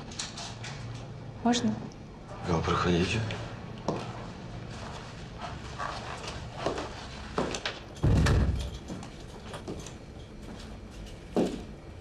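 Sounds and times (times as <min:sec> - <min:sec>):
footsteps on hard floor: 0:03.8 - 0:11.8
door shutting with heavy thud: 0:08.0 - 0:08.8.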